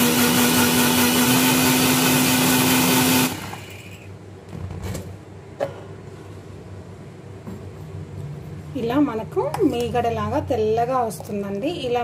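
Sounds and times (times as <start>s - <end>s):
mixer grinder running: 0.0s - 4.0s.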